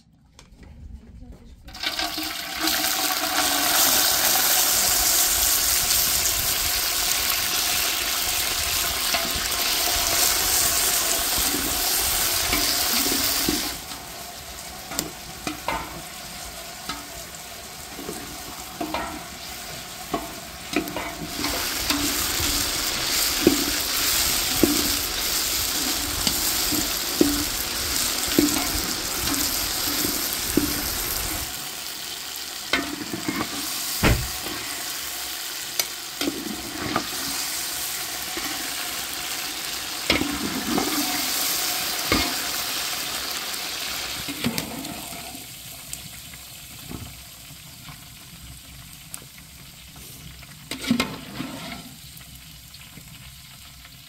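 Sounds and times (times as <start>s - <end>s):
onions sizzling in hot oil: 1.7s - 54.0s
wood fire crackling and popping: 20.0s - 32.8s
metal spoon stirring in pot: 20.1s - 31.0s.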